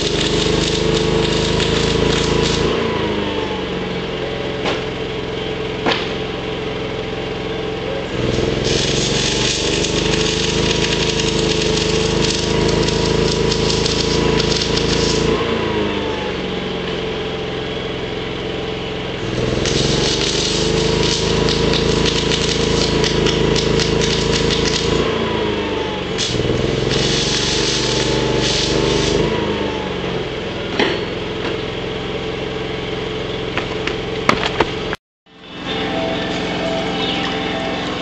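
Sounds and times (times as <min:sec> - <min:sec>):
welding arc crackling: 0:00.0 - 0:03.7, 0:08.0 - 0:16.4, 0:19.1 - 0:30.6
engine hum: 0:00.0 - 0:38.0.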